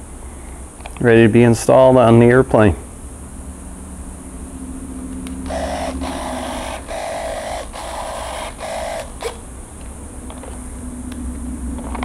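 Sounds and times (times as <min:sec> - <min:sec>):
servos whirring: 0:05.2 - 0:12.0.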